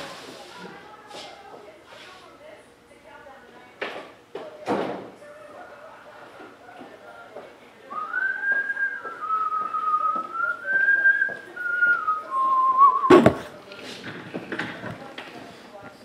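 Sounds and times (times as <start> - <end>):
person whistling a tune: 8.0 - 13.2.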